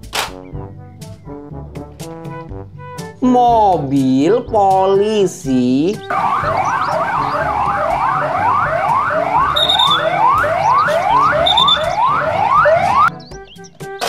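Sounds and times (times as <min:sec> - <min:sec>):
passing cars rumble: 0:06.0 - 0:13.1
police sirens: 0:06.1 - 0:13.3
short high beep: 0:09.6 - 0:10.1, 0:11.2 - 0:12.0.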